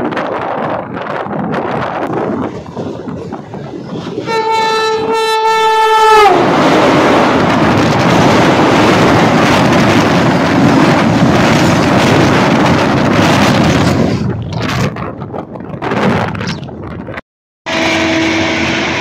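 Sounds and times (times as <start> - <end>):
train horn: 4.2 - 6.4, 17.7 - 19.0.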